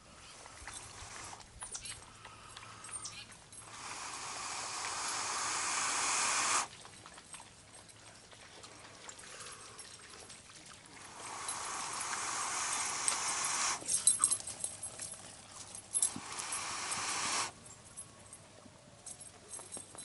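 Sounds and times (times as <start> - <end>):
breaths blown into tinder: 3.6 - 6.7, 11.1 - 13.8, 16.1 - 17.6.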